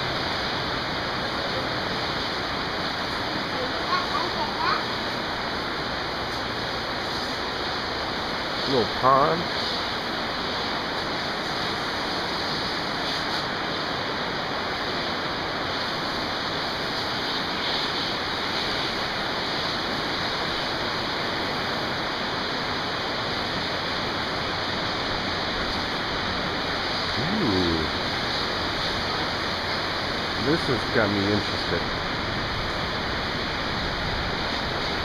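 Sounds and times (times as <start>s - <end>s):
water running hiss: 0.0s - 35.0s.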